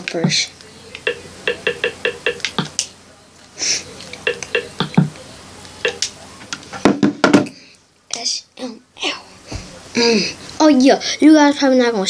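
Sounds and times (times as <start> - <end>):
electronic menu blips: 0.9 - 2.9, 4.2 - 6.2
breathy hiss: 3.5 - 4.2.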